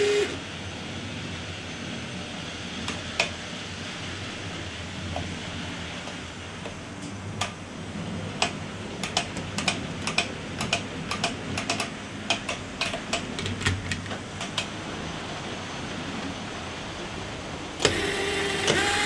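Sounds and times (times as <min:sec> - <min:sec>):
faint steady hum: 0:00.0 - 0:19.0
model train wheels clicking: 0:17.8 - 0:19.0.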